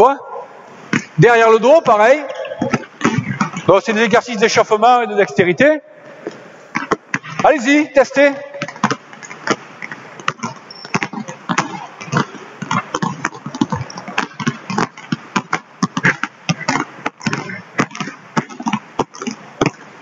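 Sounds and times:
basketballs bouncing on wood floor: 0:01.8 - 0:03.8, 0:06.2 - 0:07.6, 0:08.3 - 0:19.9.

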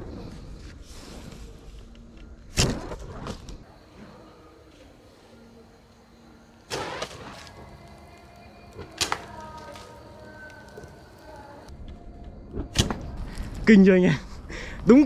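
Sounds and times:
bow string snap: 0:08.8 - 0:10.9.

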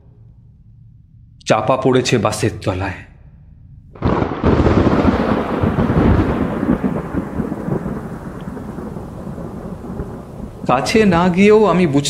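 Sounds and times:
thunderclap rolling: 0:03.9 - 0:12.0
rain: 0:04.0 - 0:12.0.

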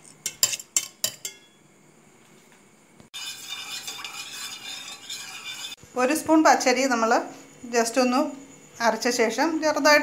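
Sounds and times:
spoon clinking against steel jar: 0:00.0 - 0:01.6
stirring paste in steel pot: 0:03.2 - 0:05.8.

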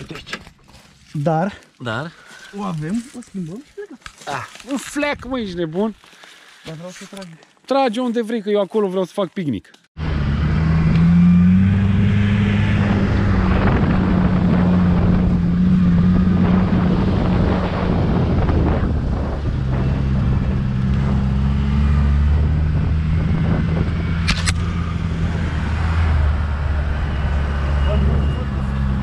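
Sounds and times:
car engine running: 0:10.0 - 0:29.0
tyre and road noise: 0:10.0 - 0:29.0
sharp click: 0:24.2 - 0:24.7.

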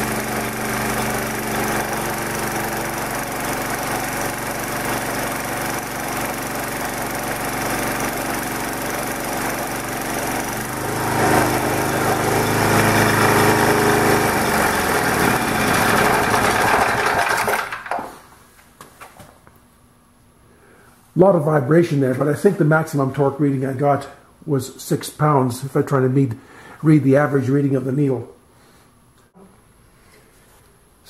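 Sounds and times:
small gasoline engine running: 0:00.0 - 0:18.1.

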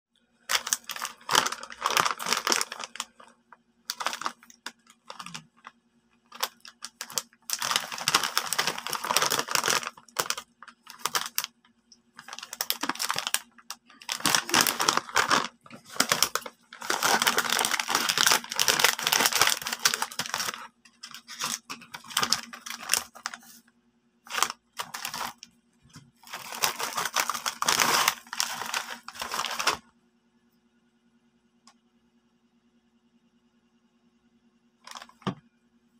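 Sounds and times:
plastic chip bag crinkling: 0:00.5 - 0:05.7, 0:06.3 - 0:11.6, 0:12.2 - 0:23.6, 0:24.3 - 0:25.5, 0:26.2 - 0:29.8, 0:34.8 - 0:35.4.

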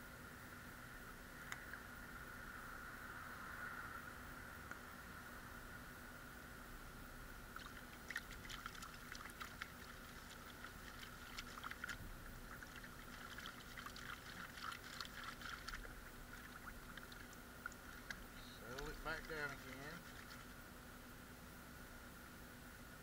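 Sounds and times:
water sloshing and splashing: 0:07.6 - 0:20.6.

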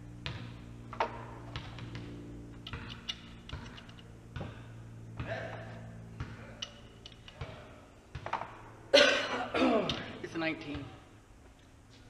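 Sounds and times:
steady low hum: 0:00.0 - 0:12.0
metal tools clicking and tapping: 0:06.6 - 0:07.4.

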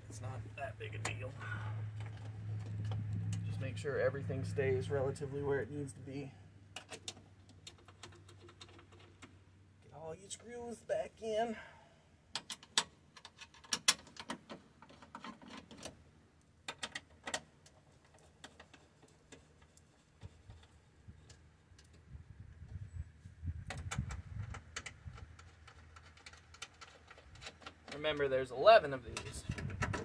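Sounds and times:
dull rubbing and handling noise: 0:12.6 - 0:16.0, 0:16.7 - 0:22.1, 0:23.2 - 0:28.2.

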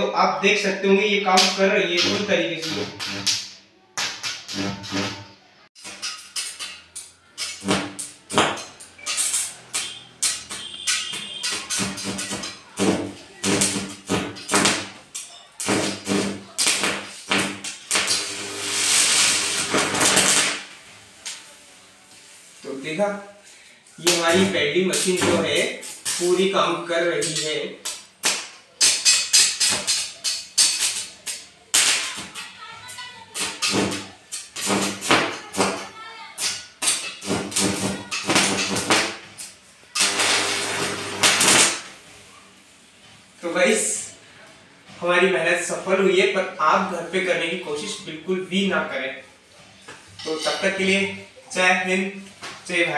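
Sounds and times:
electric arc crackling and buzzing: 0:01.4 - 0:03.5, 0:04.2 - 0:06.1, 0:07.4 - 0:21.4, 0:33.4 - 0:42.1
hissing welding arc: 0:01.4 - 0:03.5, 0:04.5 - 0:05.2, 0:05.8 - 0:21.5, 0:27.2 - 0:32.4, 0:33.3 - 0:42.1.

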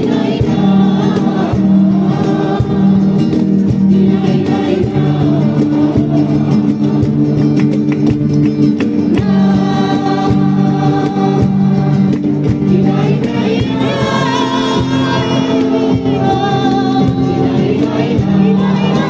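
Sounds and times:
choir singing: 0:00.0 - 0:07.6, 0:09.1 - 0:19.0
guitar accompaniment: 0:00.0 - 0:19.0
hand clapping: 0:06.3 - 0:12.7.

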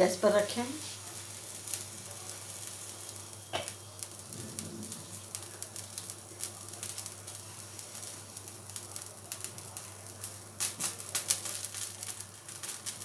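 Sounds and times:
crackling of heating pan: 0:00.0 - 0:13.0
low hum: 0:04.2 - 0:05.6.

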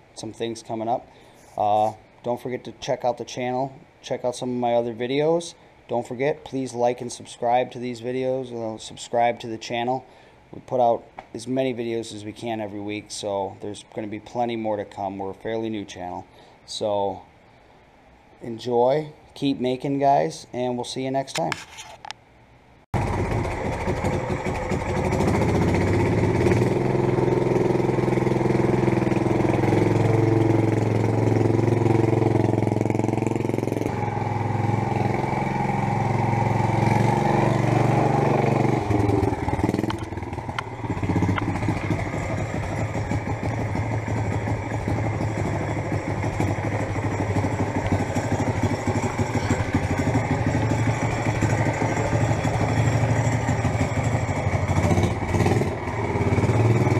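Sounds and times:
small motorbike engine revving: 0:23.0 - 0:56.9.

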